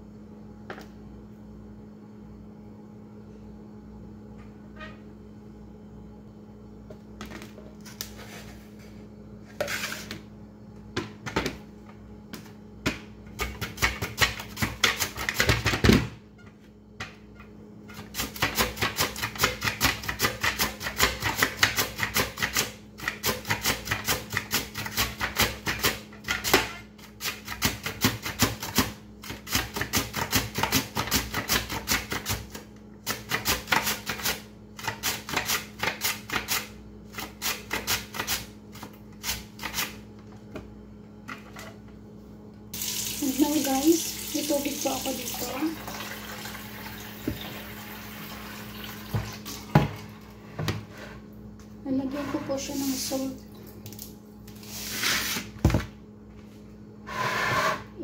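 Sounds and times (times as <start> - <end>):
mandoline slicer scraping potato: 57.1 - 58.0.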